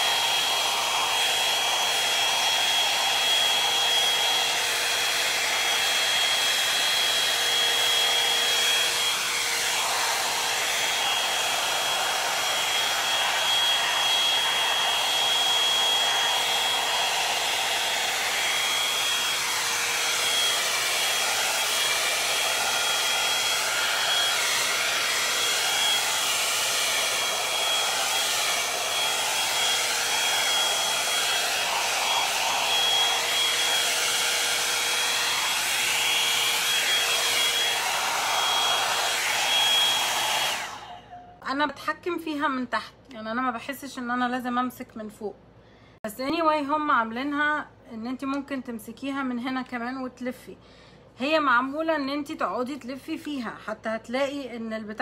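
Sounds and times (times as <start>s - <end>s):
hot-air brush blowing: 0.0s - 41.0s.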